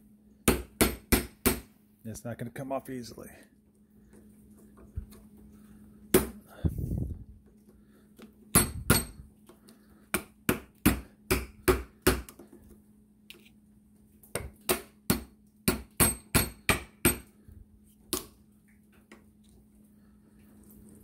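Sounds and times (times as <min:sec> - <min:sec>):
hammer striking metal: 0:08.5 - 0:09.2, 0:14.7 - 0:17.3.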